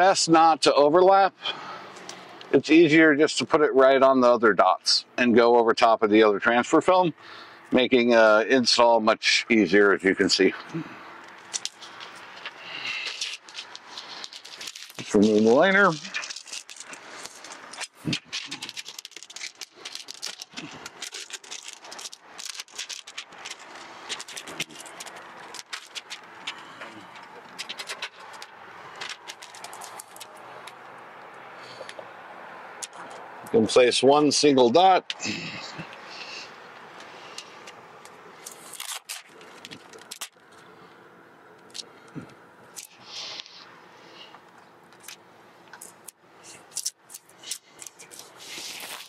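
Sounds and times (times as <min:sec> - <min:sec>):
plastic film crackling: 0:11.2 - 0:31.4, 0:37.0 - 0:40.6, 0:45.0 - 0:49.0
rubbing scrapes on glass: 0:45.9 - 0:49.0.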